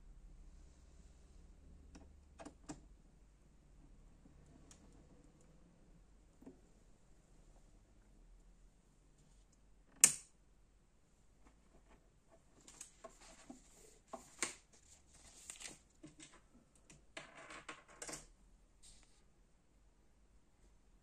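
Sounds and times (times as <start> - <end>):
knob and switch clicks: 9.9 - 10.3
paper rustling: 12.6 - 16.4.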